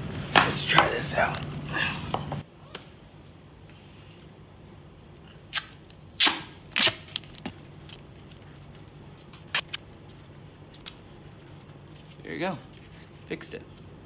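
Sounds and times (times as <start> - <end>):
duct tape ripping: 5.5 - 7.5, 9.4 - 9.8.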